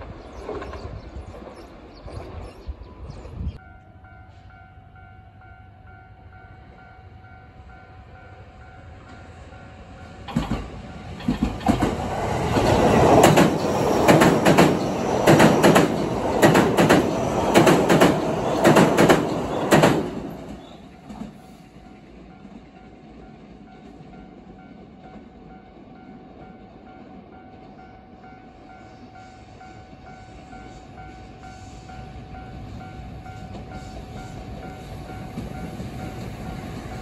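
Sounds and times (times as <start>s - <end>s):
train wheels clacking over rails: 10.2s - 25.7s, 32.6s - 37.0s.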